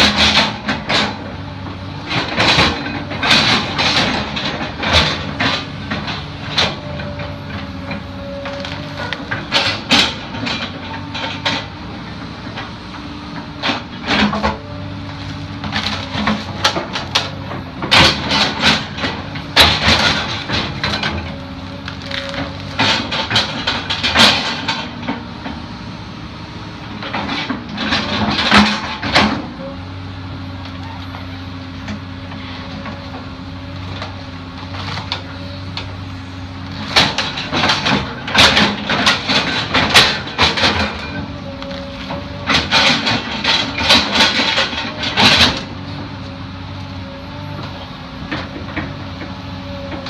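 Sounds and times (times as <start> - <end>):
excavator engine running: 0.0 - 50.0
roots cracking and crunching: 21.4 - 22.8.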